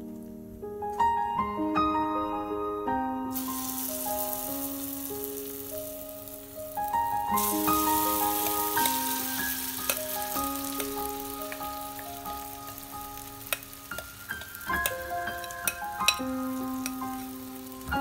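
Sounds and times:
slow background music: 0.0s - 18.0s
batter sizzling in hot oil: 3.3s - 18.0s
bowl clicking against pan: 13.2s - 16.2s.

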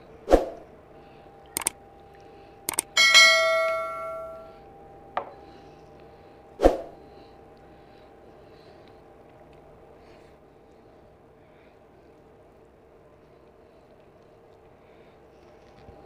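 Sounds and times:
glass bowl clinking against a plate: 3.0s - 4.5s.

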